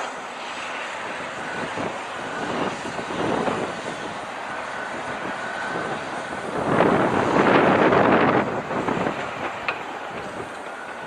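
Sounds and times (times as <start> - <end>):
excavator rumbling: 1.0 - 11.0.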